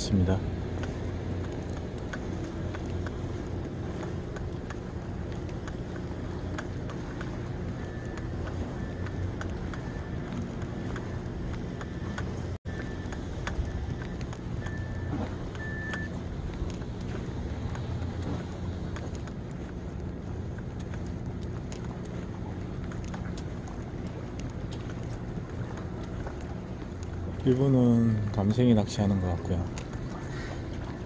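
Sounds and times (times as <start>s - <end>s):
faint high-pitched beep: 14.6s - 16.1s.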